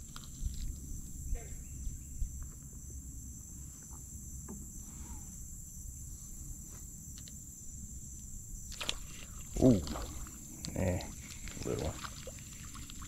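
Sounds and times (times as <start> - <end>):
insects chorus: 0.0 - 13.0.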